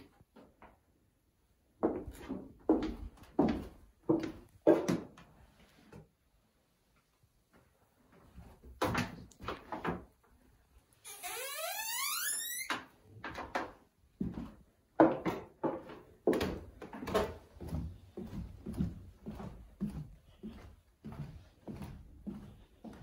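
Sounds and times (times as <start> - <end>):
footsteps on wooden floorboards: 1.8 - 5.2, 14.2 - 23.0
long rising creak: 11.0 - 12.8.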